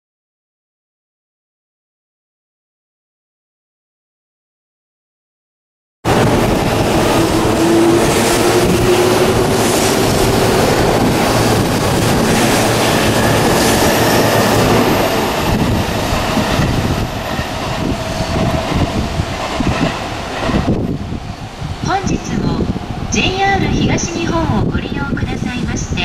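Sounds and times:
electric train motor whine: 0:06.1 - 0:19.4
wheels rumbling on rails: 0:06.1 - 0:25.6.

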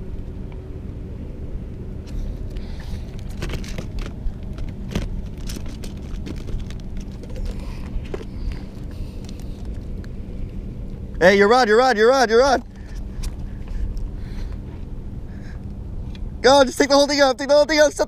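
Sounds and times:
low steady rumble: 0:00.0 - 0:18.0
tackle clicking and rustling: 0:03.0 - 0:10.1.

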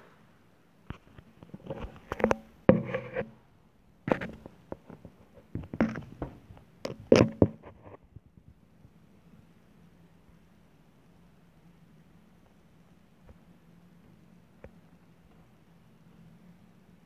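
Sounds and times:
handling knocks clicks and scrapes: 0:00.9 - 0:03.4, 0:04.1 - 0:08.1.

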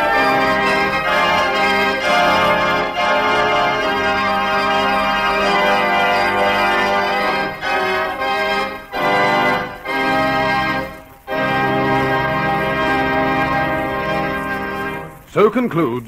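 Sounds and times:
organ chords: 0:00.0 - 0:15.7.

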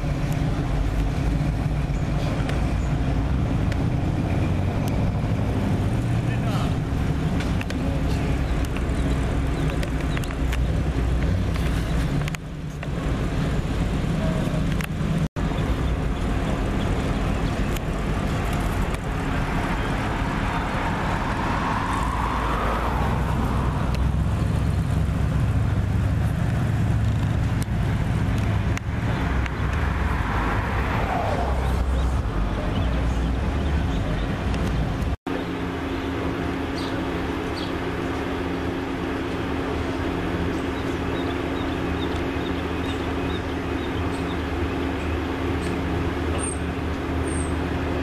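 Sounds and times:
vehicles driving by: 0:00.0 - 0:48.0
sports car engine cruising by: 0:13.0 - 0:35.0.

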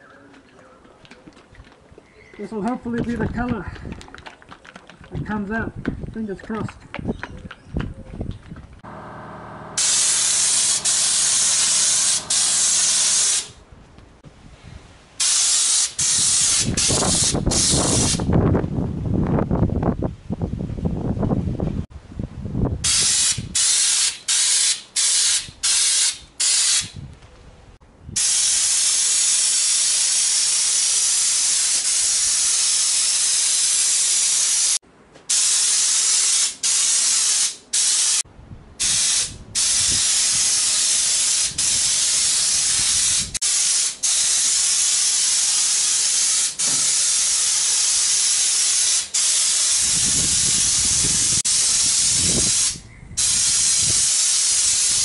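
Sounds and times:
spray gun hissing: 0:08.8 - 0:13.6, 0:15.2 - 0:18.3, 0:22.9 - 0:26.9, 0:28.2 - 0:38.2, 0:38.8 - 0:55.0.

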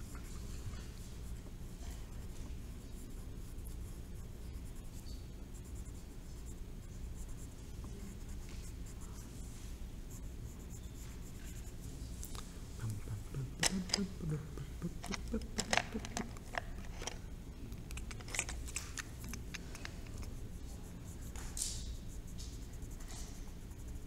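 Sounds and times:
pencil scratching on paper: 0:00.0 - 0:12.0, 0:18.0 - 0:24.0
steady low hum: 0:00.0 - 0:24.0.

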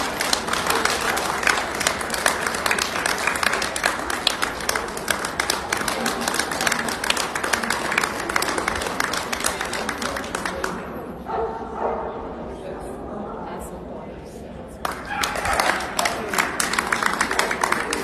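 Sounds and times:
audience clapping: 0:00.0 - 0:11.1, 0:14.8 - 0:18.0.

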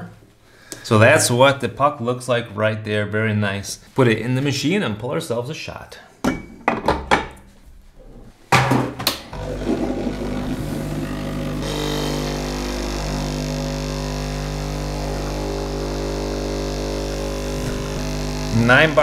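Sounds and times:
espresso machine pump humming: 0:09.3 - 0:19.0
espresso shot hissing: 0:09.4 - 0:19.0.

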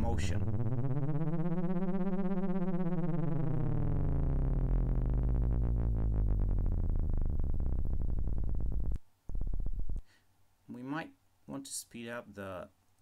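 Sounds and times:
low synthesizer drone: 0:00.0 - 0:10.0.

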